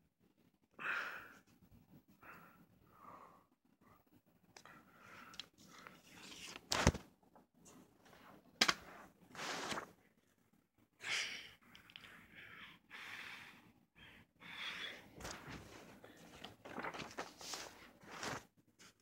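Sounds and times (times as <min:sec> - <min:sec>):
paper and cardboard rustling: 0:15.2 - 0:18.5.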